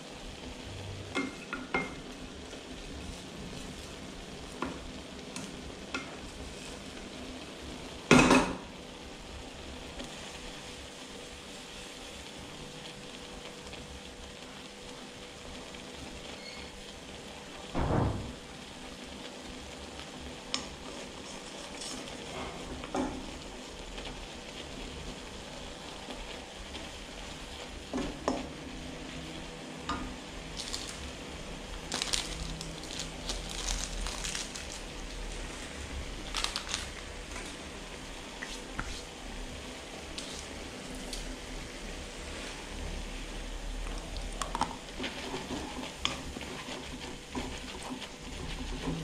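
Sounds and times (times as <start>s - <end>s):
food sizzling in a wok: 0.0s - 49.0s
spatula scraping and knocking wok: 44.4s - 49.0s.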